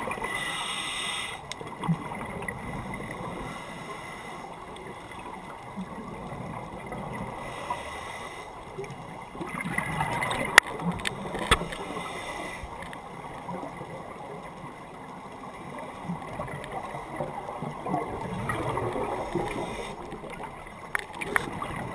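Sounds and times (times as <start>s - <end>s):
regulator bubbles gurgling underwater: 1.4s - 21.9s.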